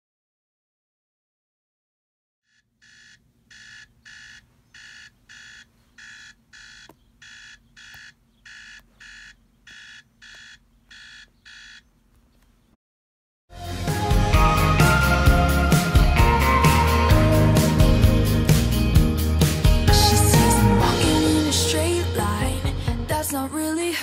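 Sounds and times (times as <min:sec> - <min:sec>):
alarm clock electronic beeps: 0:02.5 - 0:11.9.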